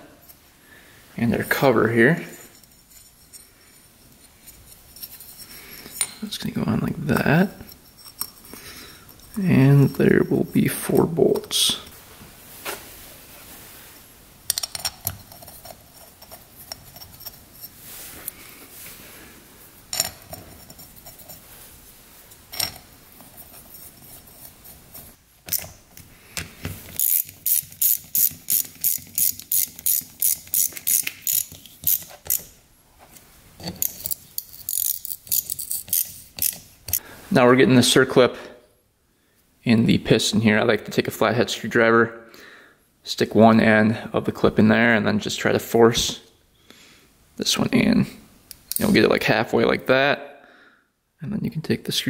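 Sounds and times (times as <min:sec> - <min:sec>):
ratchet wrench clicking: 0:27.0 - 0:32.5, 0:33.7 - 0:37.0.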